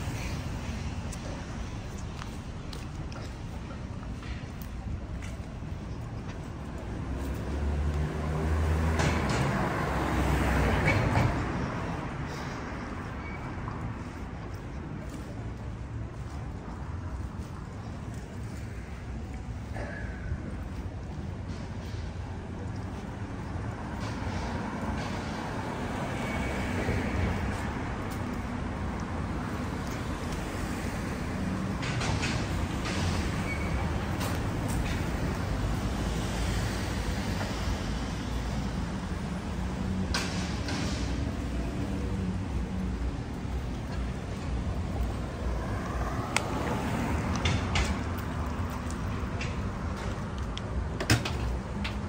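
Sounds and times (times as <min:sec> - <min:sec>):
traffic rumble: 0:00.0 - 0:52.0
vehicle passing: 0:07.0 - 0:12.5.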